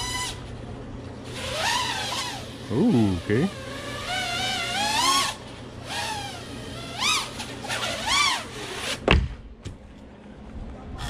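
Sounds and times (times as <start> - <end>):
quadcopter motors whining: 0.0 - 0.6, 1.2 - 9.0.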